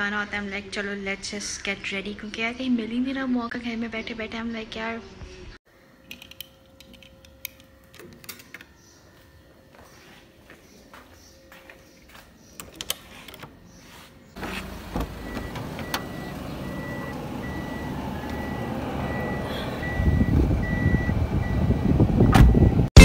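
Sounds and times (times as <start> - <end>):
handling clicks: 6.0 - 8.7
car engine running: 14.4 - 22.1
electronic warning beeps: 14.4 - 22.9.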